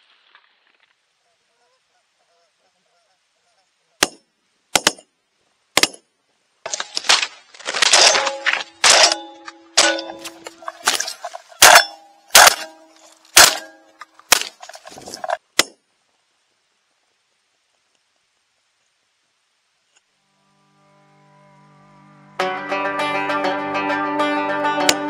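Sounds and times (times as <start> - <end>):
knocks and metallic clattering: 7.8 - 15.8
shotgun shots: 11.6 - 12.7, 13.4 - 13.7.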